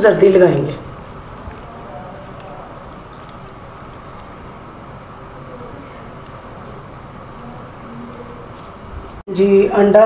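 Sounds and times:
high-pitched whine: 0.0 - 10.0.

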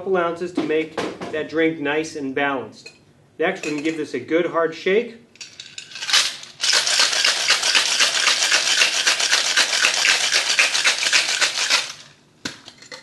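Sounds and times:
ice rattling in cocktail shaker: 5.4 - 12.2.

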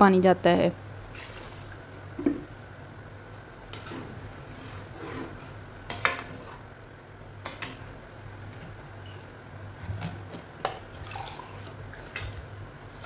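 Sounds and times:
steady low hum: 0.0 - 13.0
metal spatula scraping a pot: 3.7 - 6.6.

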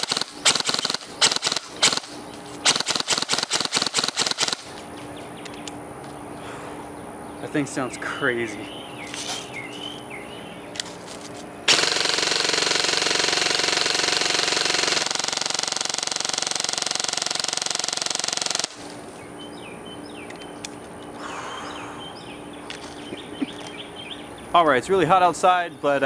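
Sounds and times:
airsoft rifle full-auto burst: 0.0 - 4.8, 11.7 - 19.0.

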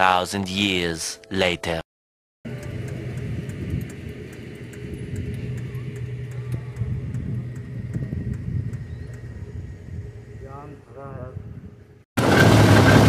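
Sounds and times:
diesel tractor engine idling: 2.5 - 10.6.

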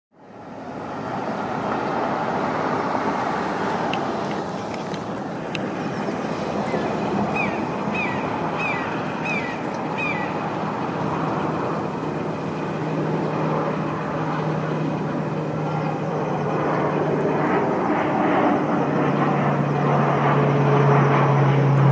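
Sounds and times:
low engine hum: 0.2 - 21.9
traffic rumble: 0.2 - 21.9
bird calling in high notes: 6.7 - 10.4.

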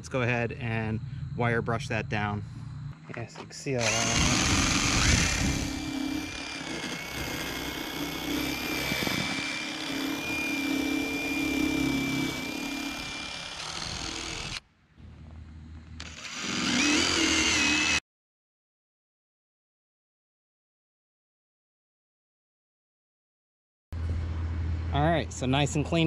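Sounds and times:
drill wire brush scrubbing rust: 3.8 - 14.6, 16.0 - 18.0.

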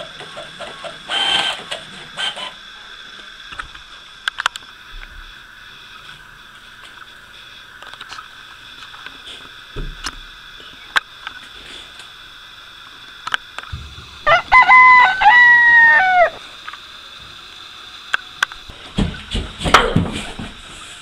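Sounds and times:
faint high hum: 2.2 - 19.2
rooster crowing: 14.0 - 16.4.

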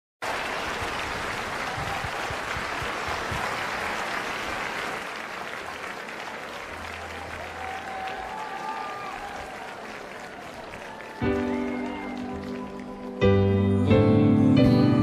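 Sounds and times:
audience applauding: 0.2 - 13.5.

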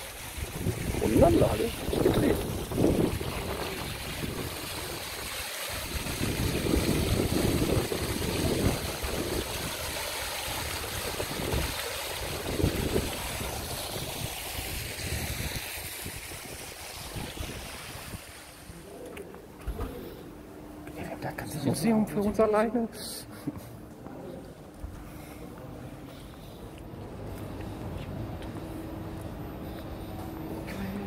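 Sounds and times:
fountain water splashing: 0.0 - 18.8
wind buffeting microphone: 0.3 - 5.2, 5.9 - 9.9, 10.6 - 18.3.

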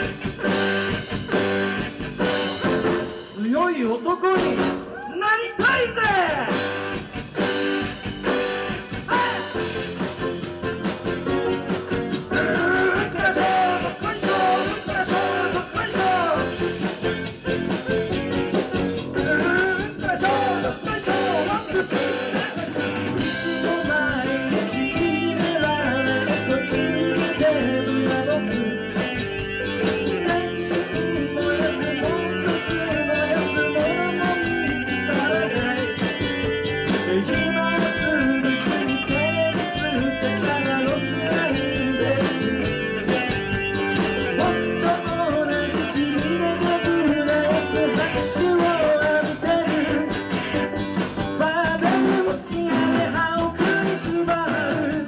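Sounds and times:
live rock band: 0.0 - 55.0
man singing: 3.2 - 6.7, 9.1 - 10.0, 12.2 - 55.0.

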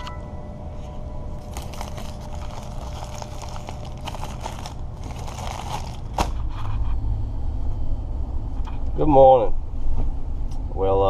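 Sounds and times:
low steady rumble: 0.0 - 11.0
paper wrapper crinkling: 1.4 - 6.6.

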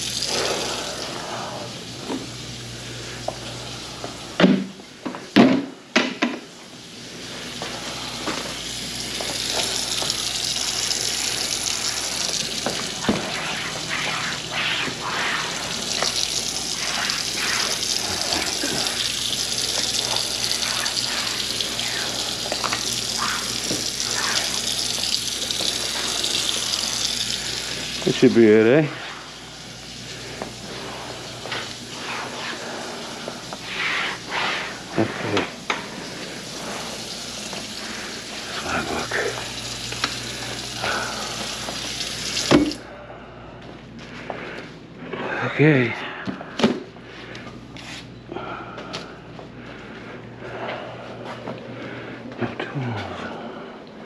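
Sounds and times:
faucet running into sink: 7.6 - 30.6, 36.4 - 42.8.

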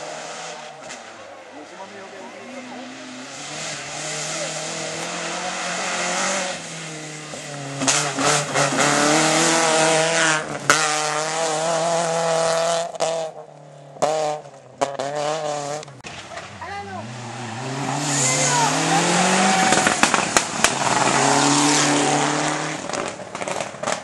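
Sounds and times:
rally car engine at high revs: 0.0 - 24.0
sharp crack: 15.8 - 16.8, 19.5 - 21.2.

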